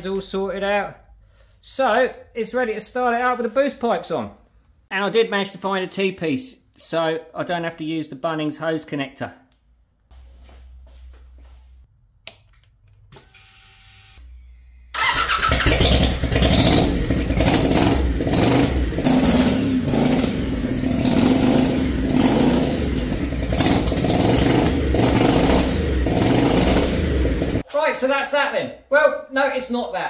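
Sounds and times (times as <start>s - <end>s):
motorcycle engine starting and running: 14.2s - 27.6s.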